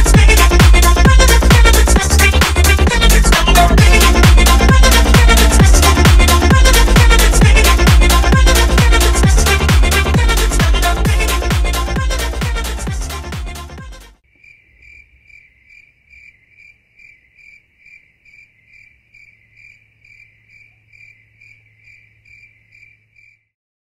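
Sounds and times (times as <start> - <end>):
electronic dance music: 0.0 - 14.2
cricket chirping: 14.2 - 23.5.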